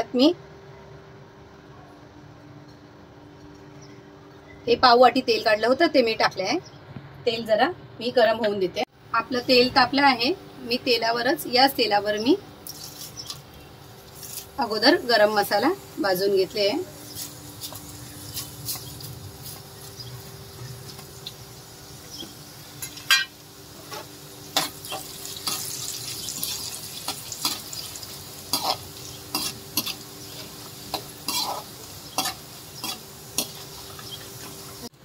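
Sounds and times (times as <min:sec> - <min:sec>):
spices sizzling in hot oil: 0:09.4 - 0:35.0.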